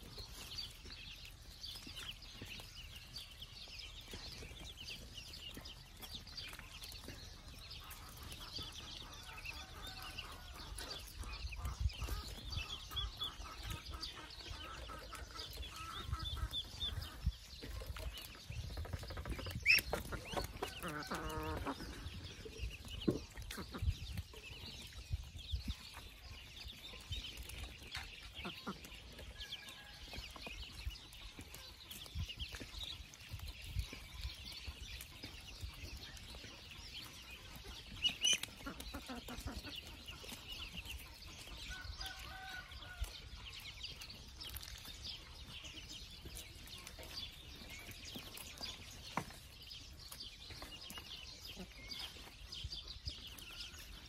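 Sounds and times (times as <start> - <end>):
chickens clucking: 0.0 - 54.0
ducklings peeping: 0.0 - 54.0
drawn-out hen call: 6.6 - 24.4, 35.8 - 44.4.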